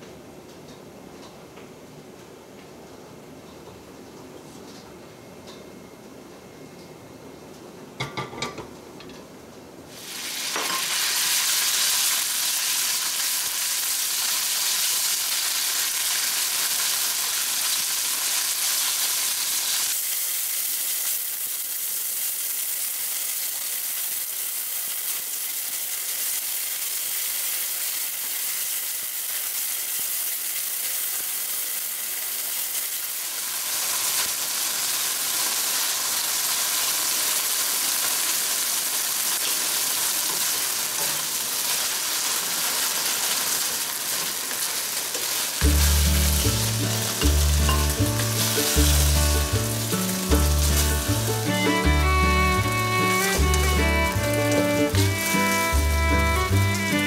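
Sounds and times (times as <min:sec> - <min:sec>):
meat sizzling in hot oil: 0:09.9 - 0:57.0.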